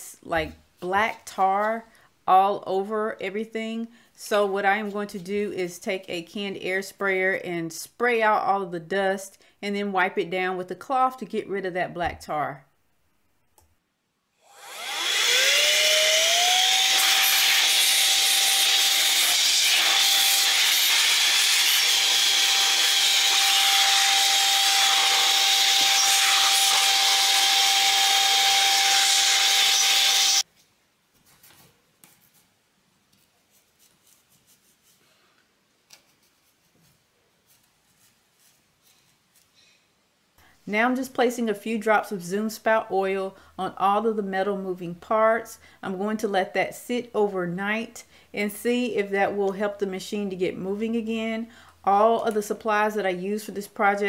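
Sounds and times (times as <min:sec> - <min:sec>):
electric air duster whining: 0:14.4 - 0:30.4
faint rubbing: 0:31.2 - 0:35.4.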